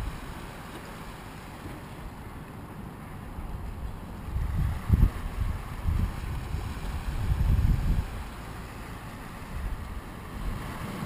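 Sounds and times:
wind buffeting microphone: 3.3 - 11.0.

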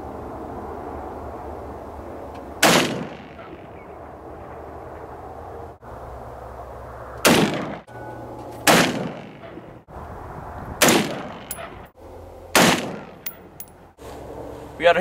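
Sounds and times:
rifle shots with echo: 2.6 - 3.7, 7.2 - 7.8, 8.6 - 9.6, 10.8 - 11.7, 12.6 - 13.4.

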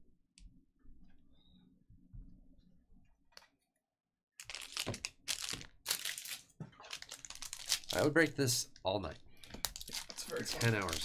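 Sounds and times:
trading cards rustling: 4.4 - 8.1, 9.4 - 11.0
card pack wrapper crinkling: 4.4 - 8.3, 9.4 - 11.0.

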